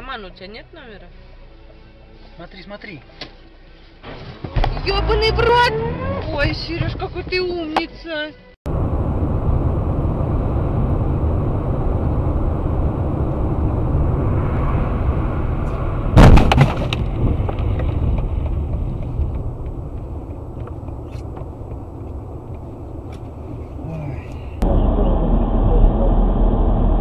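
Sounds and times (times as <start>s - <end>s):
road and wind rumble in car: 4.4s - 7.9s, 8.7s - 27.0s
loud bang: 14.2s - 17.6s.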